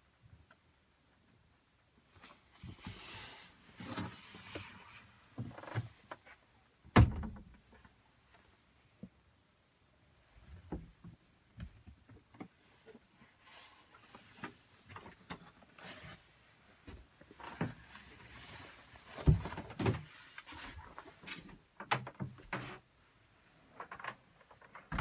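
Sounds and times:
knocks and bumps: 24.7 - 25.0.

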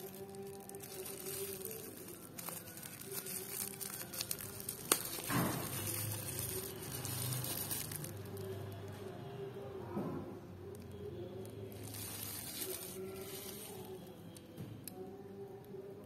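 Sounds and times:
plastic wrapping crinkling: 0.0 - 9.1, 11.4 - 14.2.

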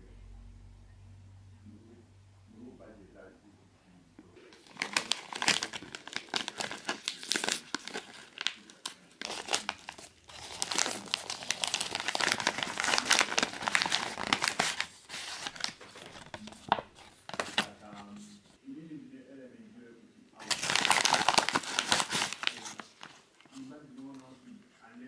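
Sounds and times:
paper envelope tearing and crinkling: 4.6 - 18.2, 20.4 - 24.2.

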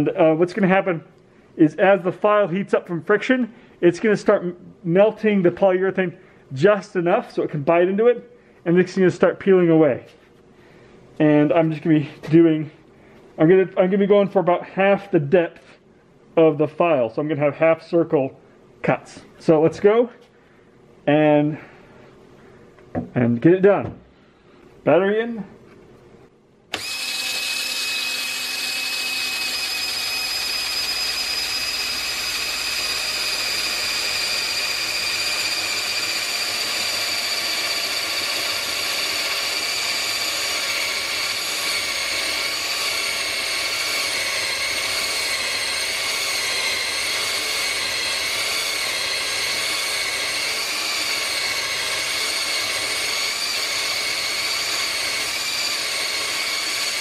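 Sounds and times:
cordless drill whining: 26.7 - 57.0.

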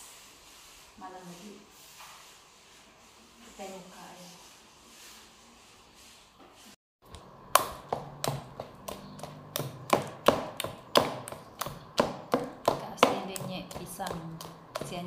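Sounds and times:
spoon mixing batter: 7.1 - 15.0.

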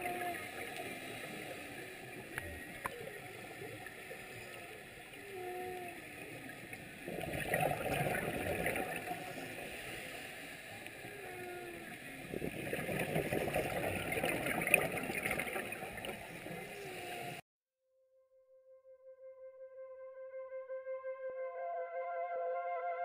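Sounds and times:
humpback whale song: 0.0 - 17.4
diver exhaling bubbles underwater: 7.0 - 9.7, 11.2 - 16.2.

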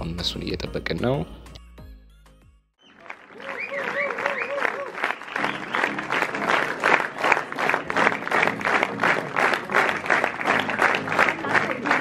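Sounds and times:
crowd applauding: 2.8 - 12.0.

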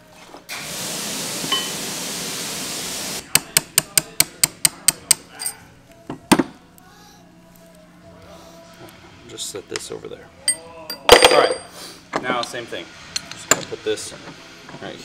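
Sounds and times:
steady hiss: 0.5 - 3.2.

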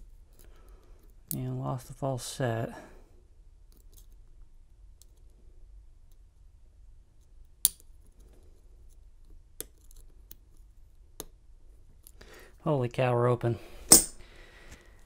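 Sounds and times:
lock pick metallic clicks: 13.9 - 14.2.

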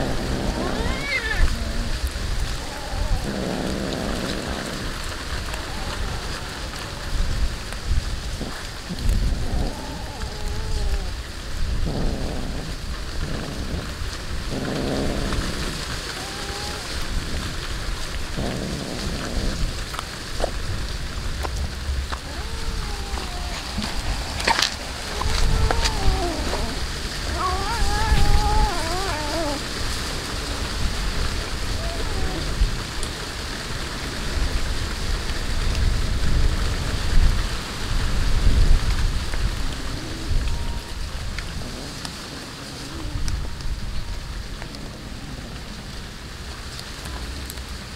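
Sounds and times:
low buzzy rumbles: 0.0 - 10.0, 10.6 - 33.1
cat chewing and licking: 21.4 - 30.0.

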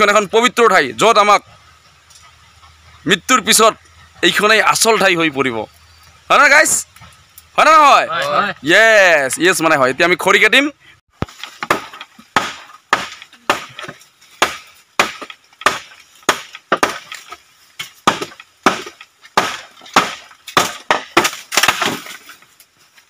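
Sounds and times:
machete chopping bamboo: 11.2 - 22.4.

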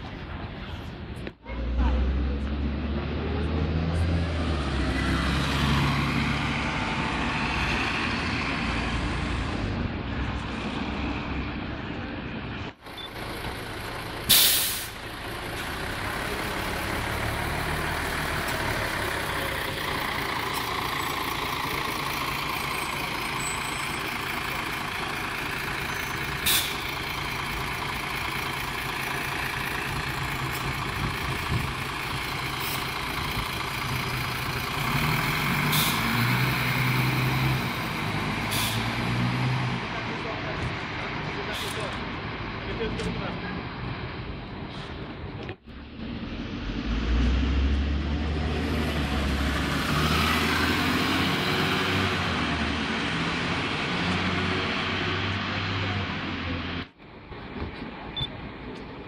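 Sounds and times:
bus diesel engine idling: 11.5 - 39.0
compressed air hiss: 14.3 - 15.0.

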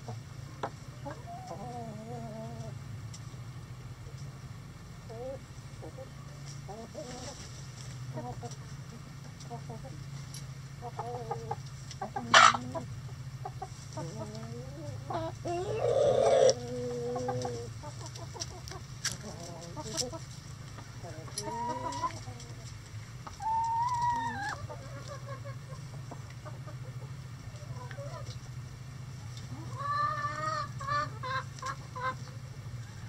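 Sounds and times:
chickens clucking: 0.0 - 33.0
steady low hum: 0.0 - 33.0
sharp chicken squawk: 12.3 - 12.6.

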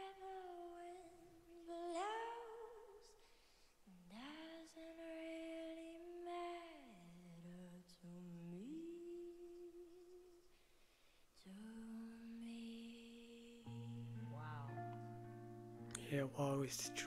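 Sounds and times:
girl humming: 13.6 - 15.0.

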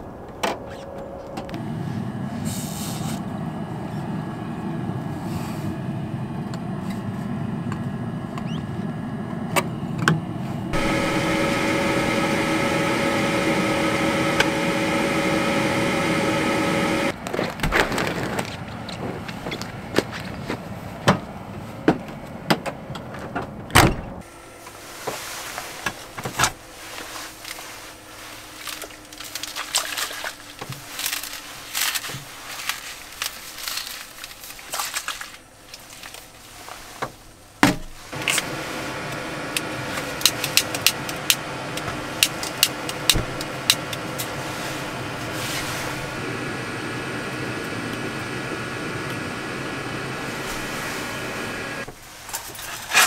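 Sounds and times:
gas heater hissing: 10.4 - 17.2, 38.0 - 52.3
igniter clicks: 10.8 - 17.1, 38.2 - 51.9.

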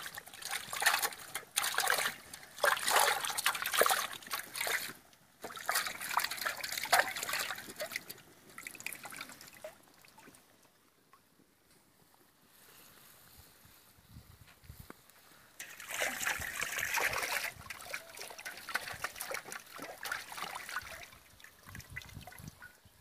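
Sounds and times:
water splashing in metal pot: 0.0 - 9.9, 15.6 - 22.5.

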